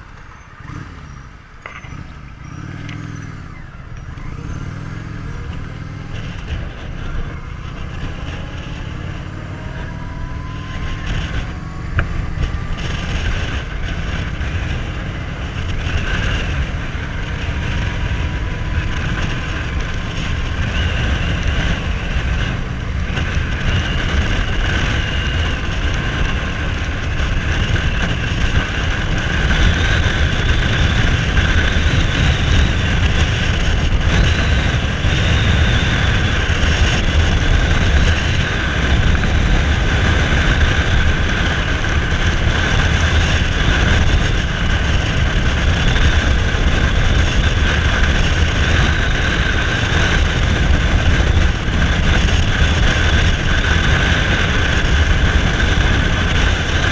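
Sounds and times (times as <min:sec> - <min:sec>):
motorcycle engine running: 0:00.0 - 0:56.9.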